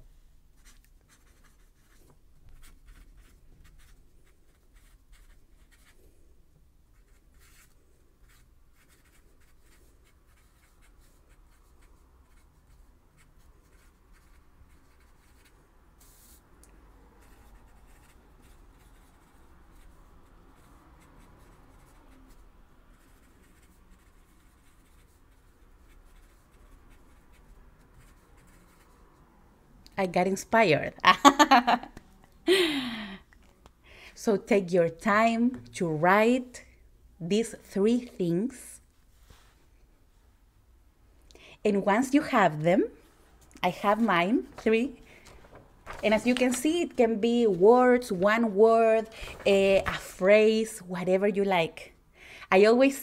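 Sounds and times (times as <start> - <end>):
pen scratching on paper: 0.6 - 6.0, 7.0 - 16.4, 17.2 - 20.0, 20.6 - 22.4, 23.0 - 28.9.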